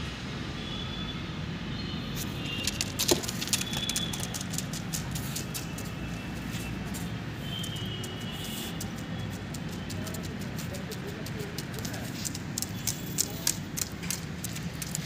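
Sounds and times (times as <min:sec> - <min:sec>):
dog claws clicking on tiles: 0:02.4 - 0:05.9, 0:08.8 - 0:15.0.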